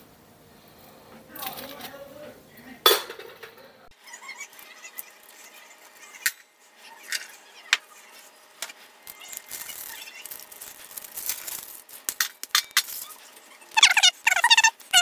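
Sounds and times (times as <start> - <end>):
hard candy clinking in pot: 9.1 - 13.2.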